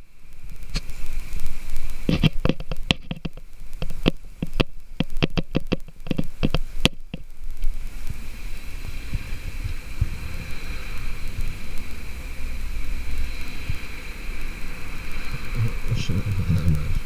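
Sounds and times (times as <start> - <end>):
fishing gear clicking and knocking: 2.1 - 7.3
steady low rushing noise: 5.8 - 17.0.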